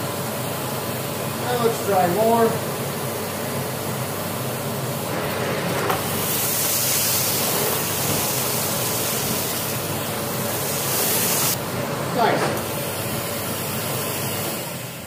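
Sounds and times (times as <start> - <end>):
vacuum cleaner running on carpet: 1.4 - 15.0.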